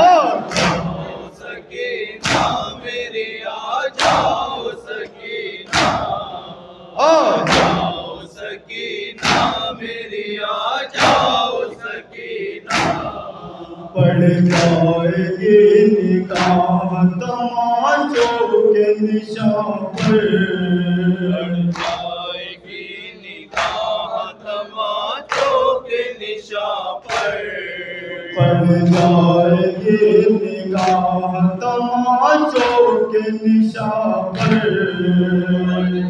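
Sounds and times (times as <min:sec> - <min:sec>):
men chanting in chorus: 0:00.0 - 0:36.0
chest striking beat: 0:14.0 - 0:15.2, 0:16.3 - 0:17.1.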